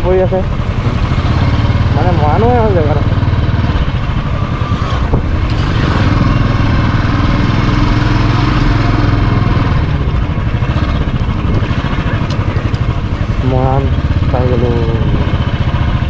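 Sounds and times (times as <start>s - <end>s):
motorcycle engine thumping: 7.9s - 16.0s.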